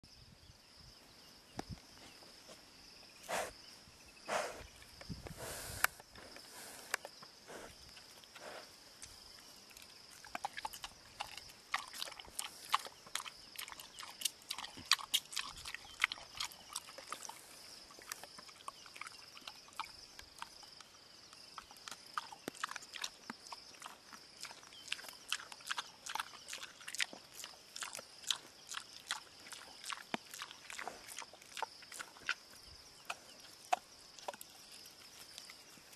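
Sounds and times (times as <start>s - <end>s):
warthog snuffles: 3.2s - 3.6s, 4.2s - 8.8s
warthog chewing wet clicks: 7.9s - 35.9s.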